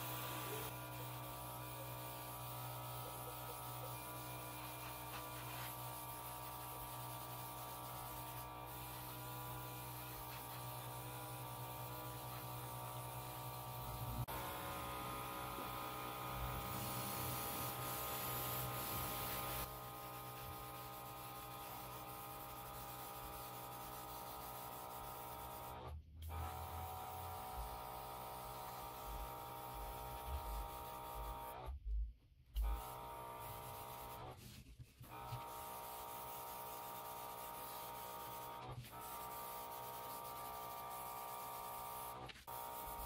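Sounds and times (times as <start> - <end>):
airbrush spraying hiss: 0.0 - 14.0, 15.7 - 25.7, 35.1 - 43.0.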